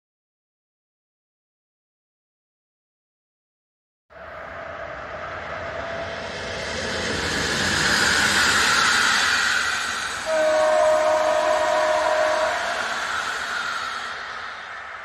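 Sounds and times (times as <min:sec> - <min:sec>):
train wheels rushing on rails: 0:04.2 - 0:15.0
train horn blast: 0:10.2 - 0:13.0.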